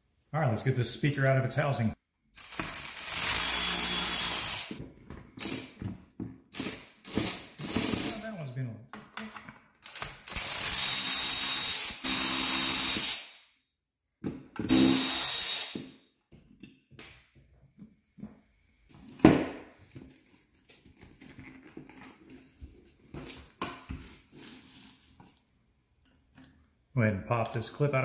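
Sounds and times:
power drill running: 2.4 - 4.8, 10.3 - 13.3, 14.7 - 15.8.

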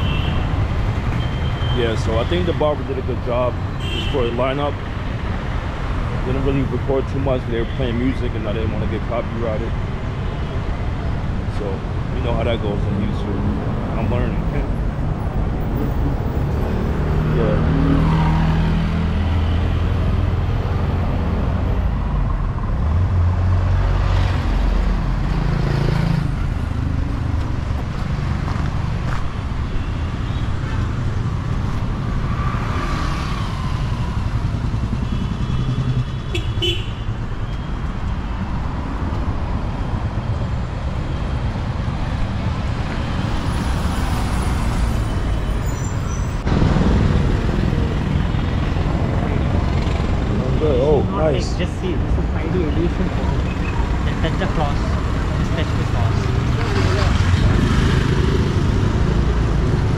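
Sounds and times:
traffic rumbling past: 0.0 - 59.9
auto-rickshaw engine: 28.4 - 37.7, 40.3 - 59.9.

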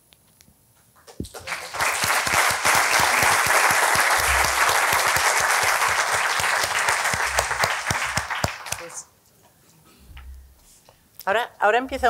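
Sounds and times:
audience applauding: 1.0 - 9.1.

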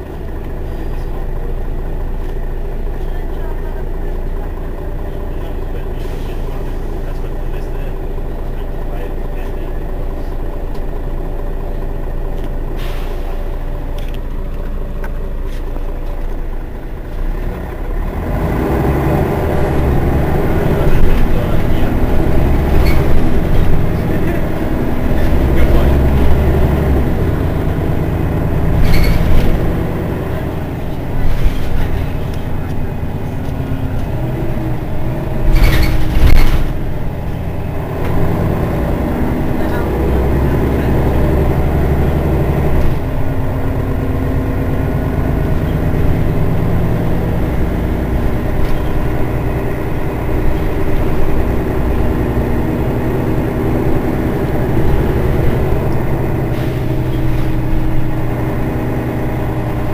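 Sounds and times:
bus engine idling: 0.0 - 59.9
short air hisses: 12.8 - 13.4.

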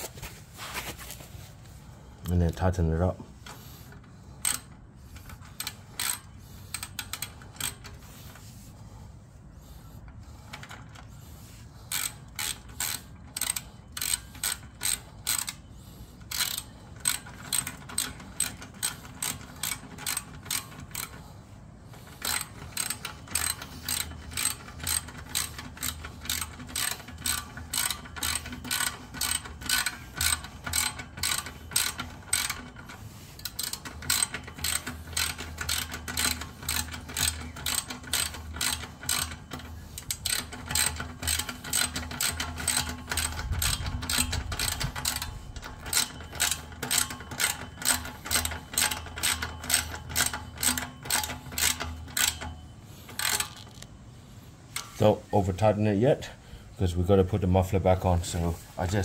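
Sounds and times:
socket ratchet clicking: 4.4 - 8.0, 11.9 - 21.2, 22.0 - 53.9.

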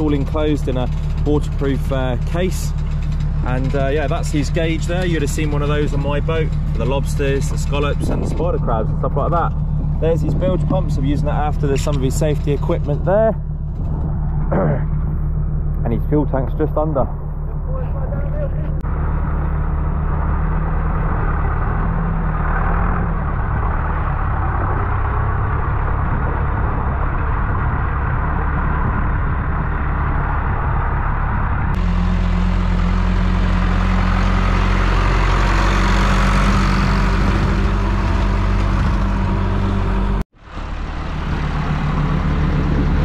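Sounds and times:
tractor engine running: 0.0 - 43.0.

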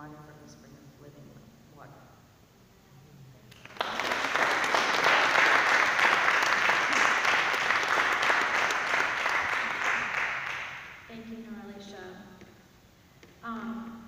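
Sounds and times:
congregation applauding: 3.5 - 11.1.

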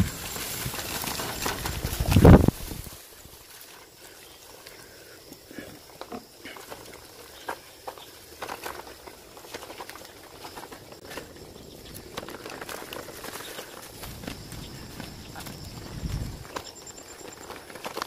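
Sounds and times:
bicycle basket and frame rattling: 0.0 - 4.7, 5.9 - 18.0
tyres rolling over leaves and dirt: 0.0 - 18.0.

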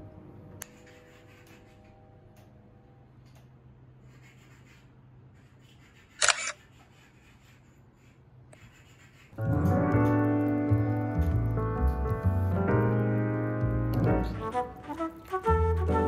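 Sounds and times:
camera shutter click: 6.2 - 6.6
piano music: 9.4 - 16.0.

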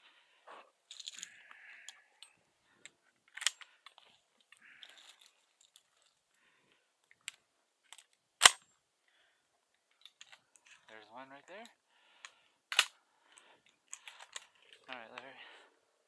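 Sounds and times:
shells rustling: 0.9 - 2.4, 3.3 - 6.2, 12.2 - 15.3
shotgun metallic clicks: 8.4 - 8.6, 12.2 - 12.9.

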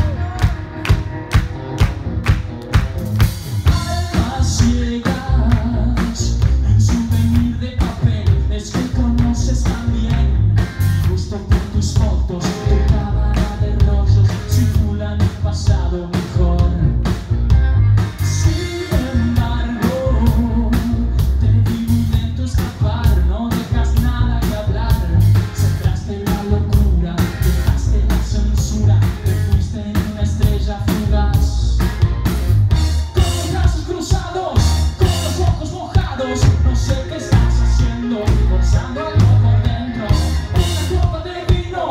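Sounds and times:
man singing: 0.0 - 1.1, 3.6 - 17.2, 18.2 - 32.0, 32.7 - 41.9
live rock band playing: 0.0 - 41.9.

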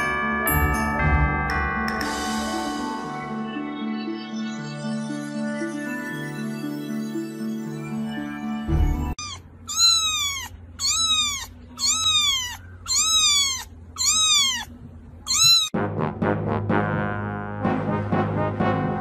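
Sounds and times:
music: 0.0 - 9.2, 15.8 - 19.0
kitten meowing: 9.2 - 15.8.

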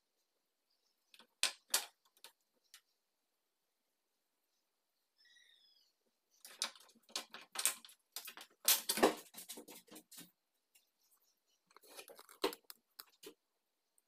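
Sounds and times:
handling rustling and clicking: 6.4 - 10.9, 11.7 - 13.4.

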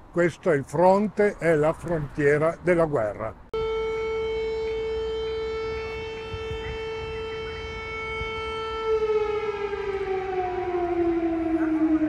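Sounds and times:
air-raid siren: 3.6 - 12.0.

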